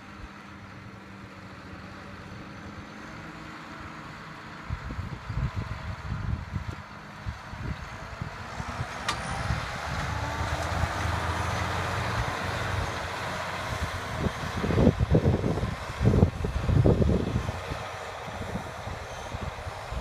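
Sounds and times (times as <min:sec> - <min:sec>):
tractor diesel engine under load: 0:00.0 - 0:20.0
wind buffeting microphone: 0:04.7 - 0:20.0.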